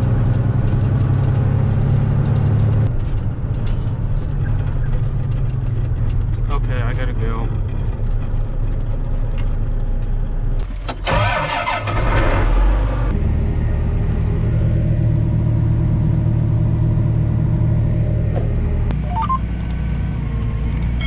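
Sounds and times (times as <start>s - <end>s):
diesel engines running: 0.0s - 21.0s
low engine drone: 11.9s - 21.0s.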